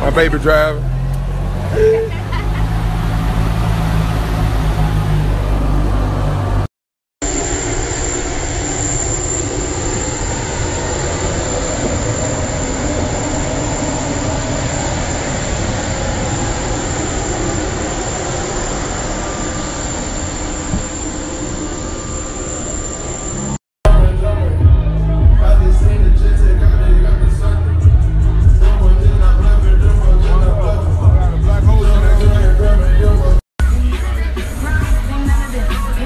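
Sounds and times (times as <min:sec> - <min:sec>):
vehicle engine hum inside cabin: 0:00.0 - 0:36.0
jet engines rushing with whine: 0:00.8 - 0:23.6.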